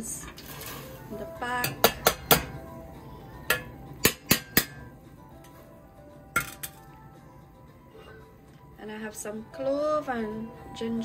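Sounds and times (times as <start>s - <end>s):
faint background music: 0.0s - 11.0s.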